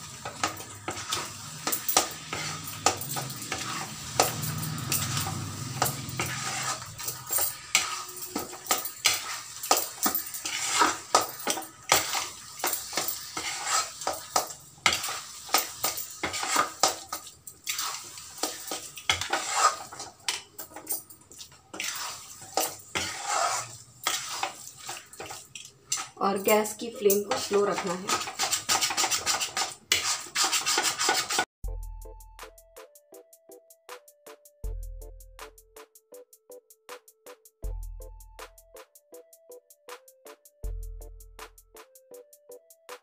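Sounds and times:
metal spatula scraping a pan: 0:00.0 - 0:31.5.

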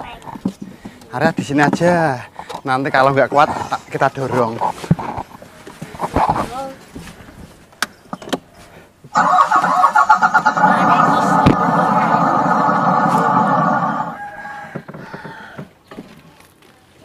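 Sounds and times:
toy truck motor noise: 0:09.2 - 0:15.3.

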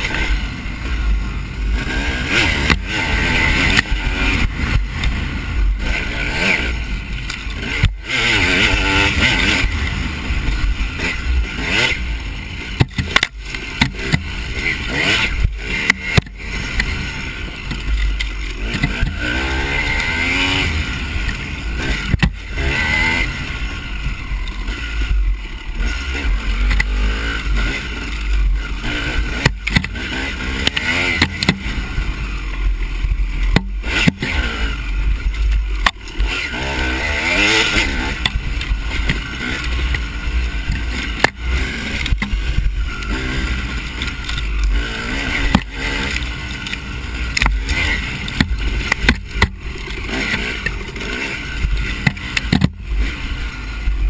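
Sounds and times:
dirt bike engine revving: 0:00.0 - 0:54.0
sharp knocks from bumps: 0:30.6 - 0:31.7, 0:51.9 - 0:52.8.

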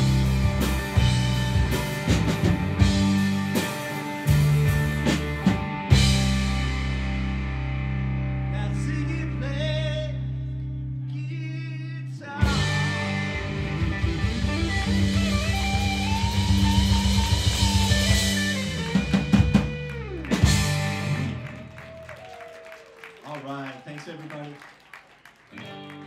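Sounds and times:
rock band playing: 0:00.0 - 0:10.3, 0:12.4 - 0:22.3, 0:25.5 - 0:26.0.

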